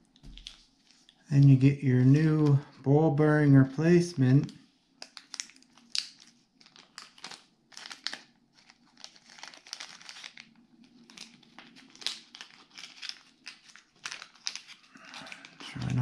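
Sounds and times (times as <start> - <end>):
plastic bag crinkling: 0.1 - 1.2, 5.0 - 16.0.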